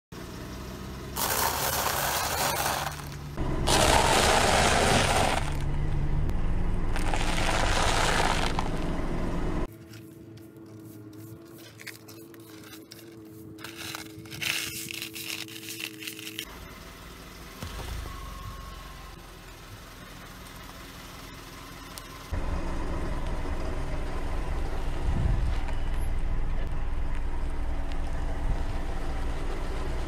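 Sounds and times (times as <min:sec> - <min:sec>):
low engine rumble: 0:00.1 - 0:30.0
car tyre crunching noodles: 0:01.1 - 0:05.8, 0:06.9 - 0:09.0, 0:09.7 - 0:16.5.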